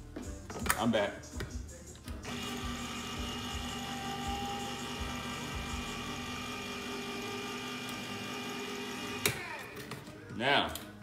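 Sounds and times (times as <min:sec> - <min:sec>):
electric can opener motor hum: 0:02.2 - 0:09.8.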